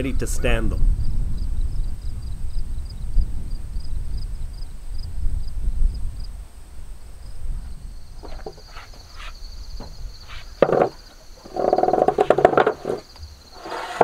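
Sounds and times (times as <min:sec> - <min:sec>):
insects trilling: 0:01.0 - 0:14.0
lumber knocks and thuds: 0:08.2 - 0:14.0
strained wooden groan: 0:08.2 - 0:14.0.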